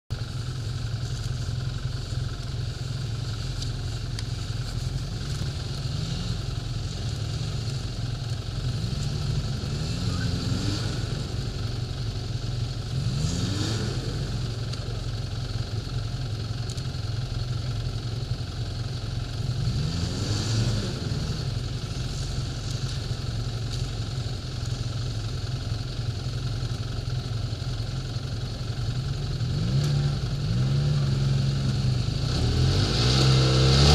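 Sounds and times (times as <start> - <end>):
snowmobile engines idling: 0.1 - 33.9
snowmobile throttle blips: 1.0 - 15.1, 19.5 - 24.9.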